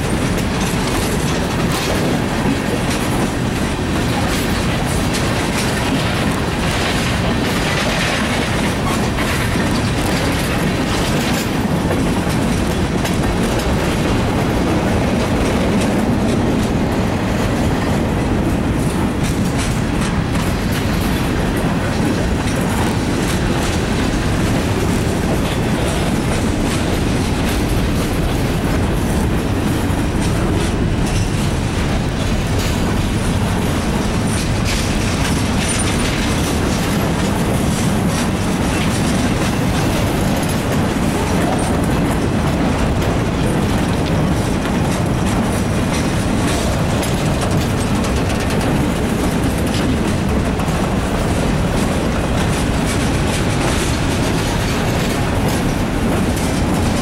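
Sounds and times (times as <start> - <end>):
freight cars rumbling on rails: 0.0 - 57.0
wheels clicking over rail joints: 0.0 - 57.0.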